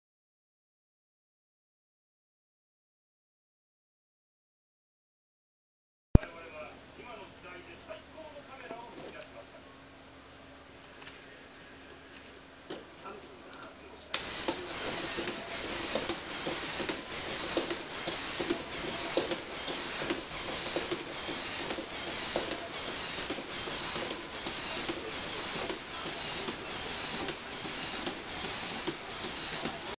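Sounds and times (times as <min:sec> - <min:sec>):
robot legs clicking: 0:14.2 - 0:29.9
small electric motor whirring: 0:14.2 - 0:29.9.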